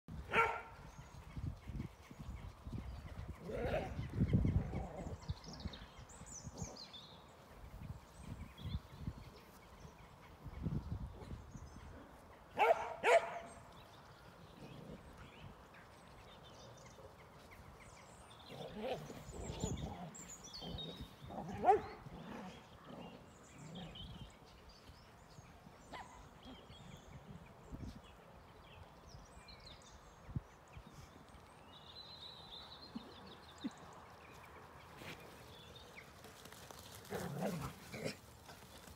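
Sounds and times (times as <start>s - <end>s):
dogs barking and yelping: 0.3s - 0.7s, 12.6s - 13.5s, 18.6s - 23.2s.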